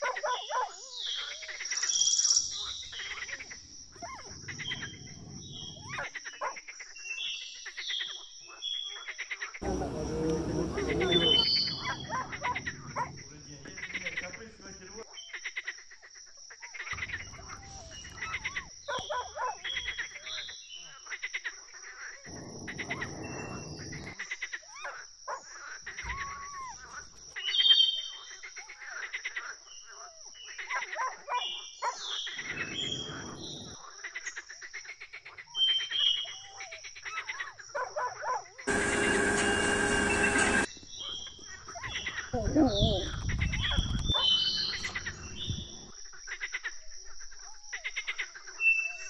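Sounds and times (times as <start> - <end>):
steady high-pitched whine: 9.6 - 13.0, 38.7 - 40.7.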